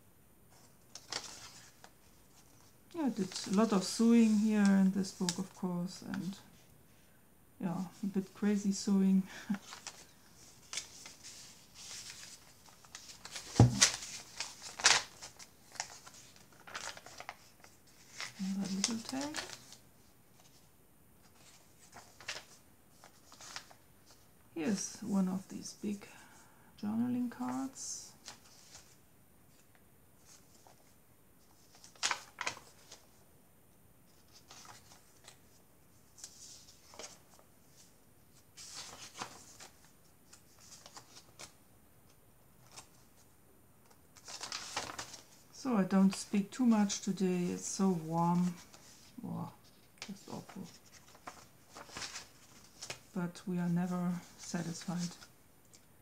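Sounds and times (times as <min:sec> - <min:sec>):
journal pages turning: 0:00.5 - 0:05.6, 0:09.6 - 0:24.2, 0:27.4 - 0:33.1, 0:34.1 - 0:41.6, 0:42.6 - 0:43.2, 0:43.8 - 0:45.4, 0:48.4 - 0:53.2, 0:54.2 - 0:55.9
paper rustling: 0:00.5 - 0:06.6, 0:09.4 - 0:24.3, 0:27.4 - 0:33.2, 0:34.1 - 0:41.6, 0:42.6 - 0:43.2, 0:43.8 - 0:45.4, 0:47.9 - 0:53.2, 0:54.1 - 0:55.9
paper rustling swishes: 0:34.1 - 0:41.6, 0:43.8 - 0:45.4, 0:47.9 - 0:53.1.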